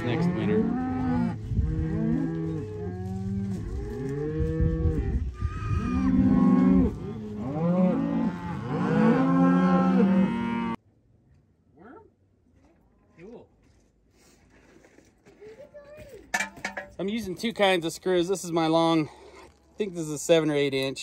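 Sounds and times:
cattle mooing: 0.0 - 10.8.

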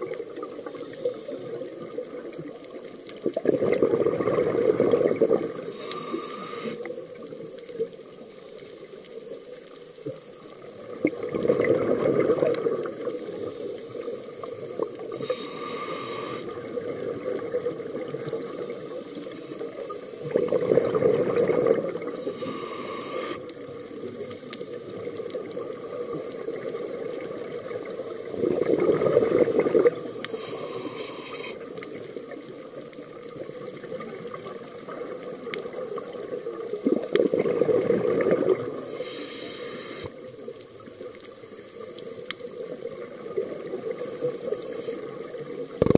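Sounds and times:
bubbling exhaust underwater: 0.0 - 7.5, 10.6 - 40.5, 41.8 - 45.9
high breath hisses: 5.7 - 6.9, 15.1 - 16.6, 22.2 - 23.5, 30.1 - 31.6, 38.8 - 40.2.

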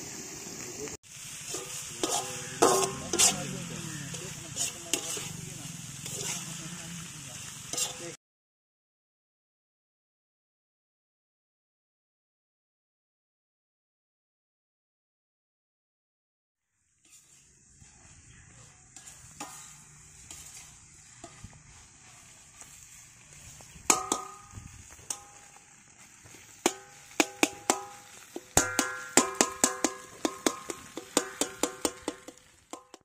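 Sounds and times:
food sizzling in a pan: 0.0 - 8.2, 16.6 - 33.0
ladle clanking against pan: 1.5 - 3.4, 23.9 - 25.3, 26.6 - 33.0.

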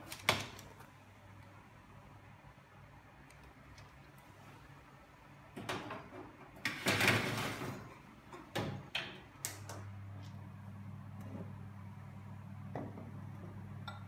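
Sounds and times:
steady low hum: 9.2 - 14.0.

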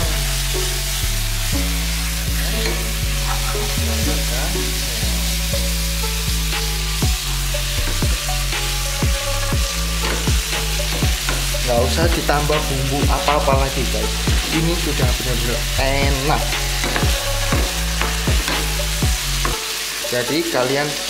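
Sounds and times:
meat and onion sizzling: 0.0 - 21.0
spatula knocking against pan: 16.6 - 19.7.

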